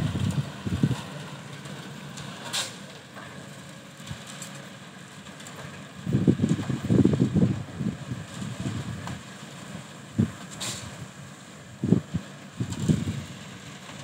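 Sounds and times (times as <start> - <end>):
wind buffeting microphone: 0.0 - 1.1, 6.0 - 9.2, 10.1 - 11.1, 11.8 - 13.4
diesel engine running: 0.0 - 14.0.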